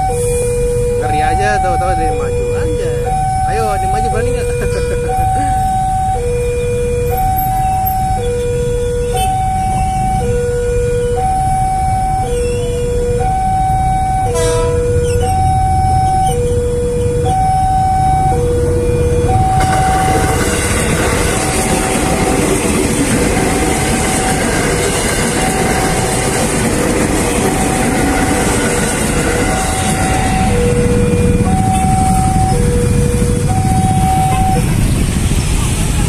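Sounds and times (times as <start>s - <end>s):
electric train passing: 0.0s - 6.2s, 17.4s - 36.0s
level-crossing warning alarm: 0.0s - 36.0s
motorcycle engines: 0.0s - 36.0s.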